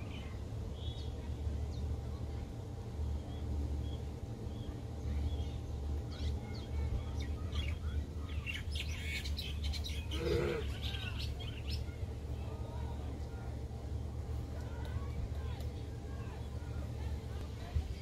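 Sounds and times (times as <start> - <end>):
small birds chirping: 0.0 - 18.0
steady low rumble: 0.0 - 18.0.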